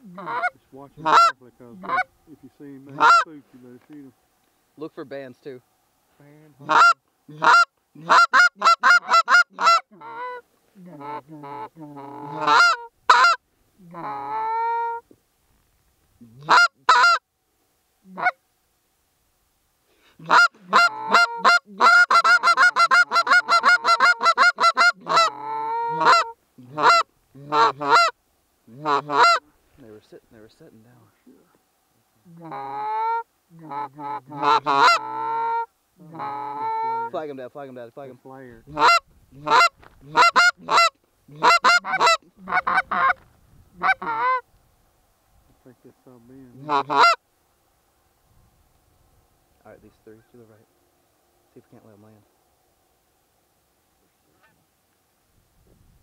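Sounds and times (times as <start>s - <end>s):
goose call clucks: 0.0s - 2.1s, 2.9s - 3.3s, 6.6s - 15.1s, 16.2s - 17.2s, 18.1s - 18.4s, 20.2s - 29.5s, 32.2s - 37.2s, 38.7s - 43.2s, 43.8s - 44.4s, 46.5s - 47.2s
goose call honks: 0.0s - 2.1s, 2.9s - 3.4s, 6.6s - 15.0s, 16.2s - 17.2s, 18.1s - 18.4s, 20.2s - 29.5s, 32.3s - 37.2s, 38.7s - 43.2s, 43.8s - 44.4s, 46.4s - 47.2s.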